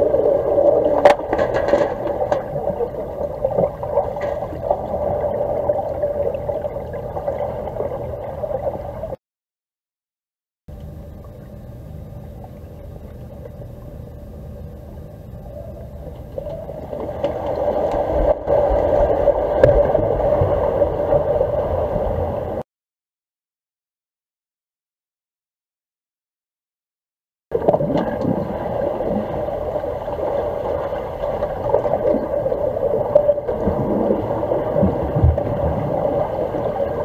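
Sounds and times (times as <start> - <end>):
underwater hum and watery rush: 0.0 - 9.2, 10.7 - 22.6, 27.5 - 37.0
faint clicks: 10.7 - 18.2.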